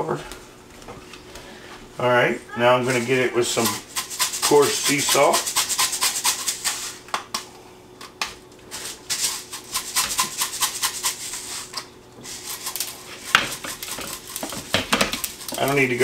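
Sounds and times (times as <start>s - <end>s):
salt shaker rattling: 3.5s - 7.0s, 8.8s - 16.0s.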